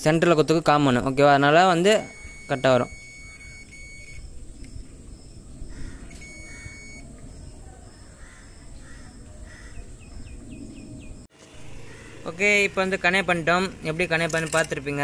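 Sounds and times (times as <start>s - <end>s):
multimeter beep: 1.8s - 4.3s, 6.1s - 7.1s.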